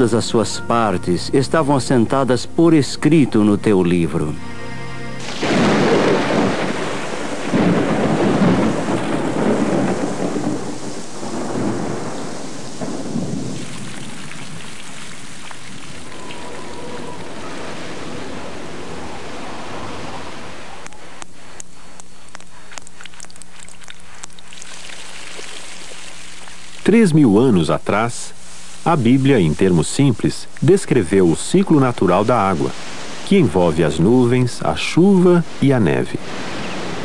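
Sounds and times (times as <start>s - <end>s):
steady rain: 5.0s - 37.0s
sharp water drips: 5.2s - 17.4s, 20.8s - 27.0s
thunder rumbling: 5.2s - 20.3s.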